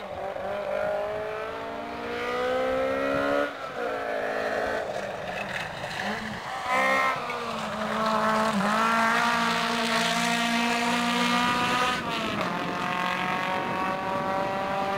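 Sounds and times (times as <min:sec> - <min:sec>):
rally car engine high revs: 0:05.9 - 0:14.9.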